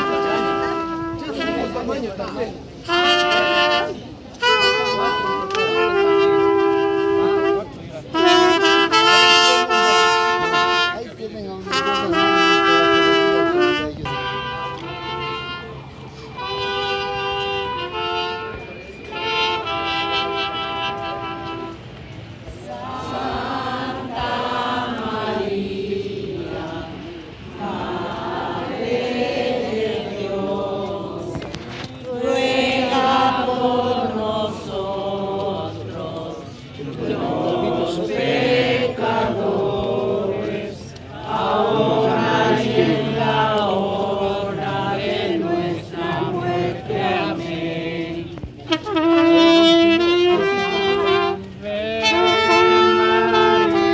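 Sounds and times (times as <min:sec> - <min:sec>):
crowd singing a hymn: 0:22.4 - 0:53.9.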